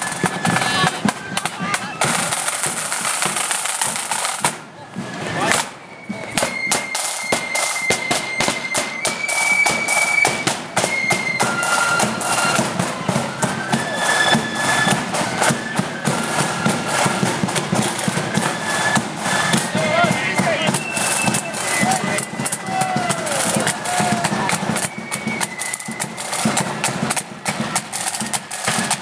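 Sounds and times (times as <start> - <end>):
flutes playing melody: 0.0 - 29.0
rapid side-drum strokes: 0.0 - 29.0.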